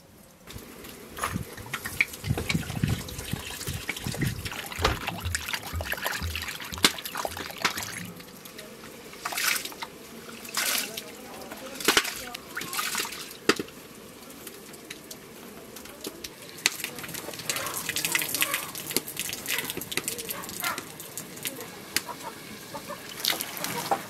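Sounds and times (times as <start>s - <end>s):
water pouring into bowl: 1.3s - 8.4s.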